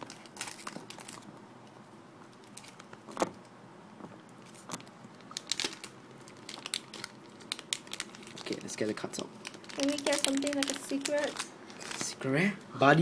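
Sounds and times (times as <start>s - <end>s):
foil wrapper crinkling: 0.0s - 1.4s, 2.3s - 3.2s, 4.4s - 12.2s.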